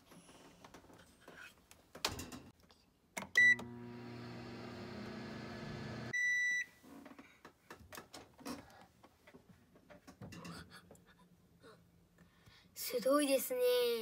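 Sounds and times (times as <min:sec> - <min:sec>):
microwave button beeps: 0:03.3 - 0:03.8, 0:06.2 - 0:06.7
microwave oven humming: 0:03.4 - 0:06.1.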